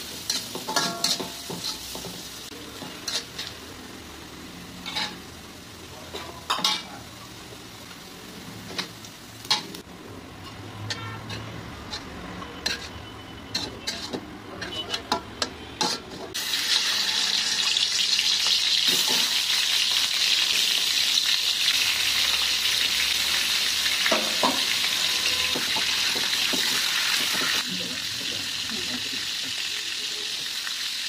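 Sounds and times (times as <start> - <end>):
metal spatula scraping a pan: 0.0 - 3.6, 10.4 - 17.9
food sizzling in hot oil: 0.0 - 14.2, 15.8 - 31.0.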